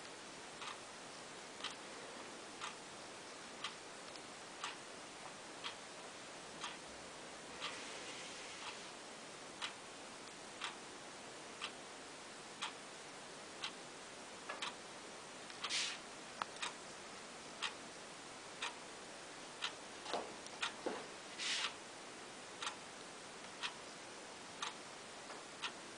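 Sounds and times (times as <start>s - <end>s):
faint steady hiss: 0.0s - 25.9s
clock ticking: 0.5s - 0.9s, 2.6s - 2.8s, 3.6s - 4.9s, 5.6s - 5.9s, 6.6s - 6.9s, 9.6s - 10.8s, 11.6s - 11.8s, 12.6s - 12.8s, 13.6s - 13.8s, 14.5s - 14.8s, 16.5s - 16.8s, 17.6s - 17.8s, 18.6s - 18.8s, 19.6s - 19.8s, 20.5s - 20.8s, 22.6s - 22.8s, 23.4s - 23.9s, 24.6s - 24.8s.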